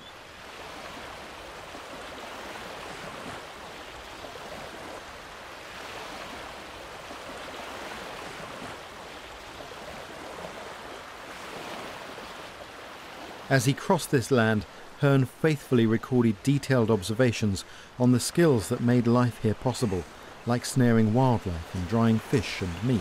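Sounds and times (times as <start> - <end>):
waves lapping on gravel shore: 0.4 - 13.9.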